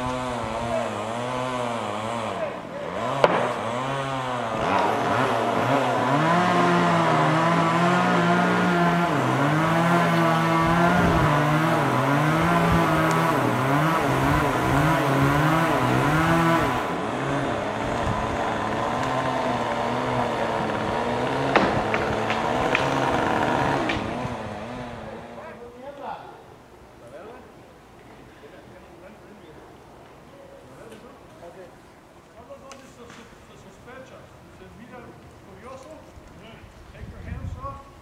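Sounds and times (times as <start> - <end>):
chainsaw cutting wood: 0.0 - 25.6
sharp knocks: 3.2 - 3.6, 21.4 - 24.2.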